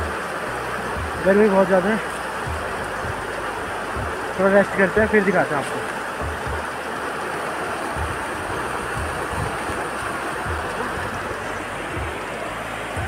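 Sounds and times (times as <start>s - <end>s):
river rushing over rocks: 0.0s - 13.0s
low thumps on microphone: 2.4s - 3.3s, 3.9s - 4.4s, 6.1s - 6.8s, 7.9s - 12.3s.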